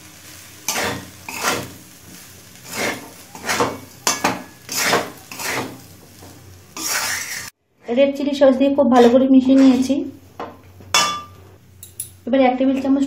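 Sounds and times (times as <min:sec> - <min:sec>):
spatula scraping metal pan: 0:00.6 - 0:07.5.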